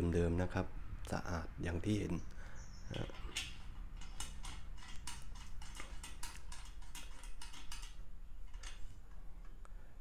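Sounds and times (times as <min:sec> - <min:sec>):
metal cap screwing clicks: 0:02.9 - 0:08.9.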